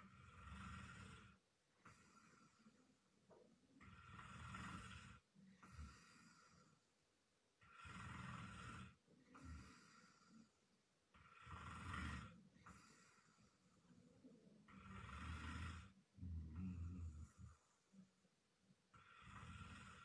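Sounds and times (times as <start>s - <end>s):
man snoring: 0.0s - 2.7s, 3.8s - 6.8s, 7.6s - 10.5s, 11.1s - 13.8s, 14.7s - 17.8s, 18.9s - 20.0s.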